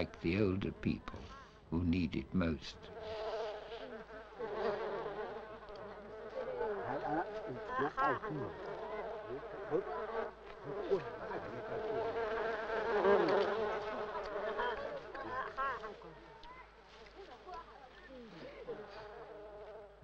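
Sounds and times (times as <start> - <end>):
flies buzzing: 0.0 - 20.0.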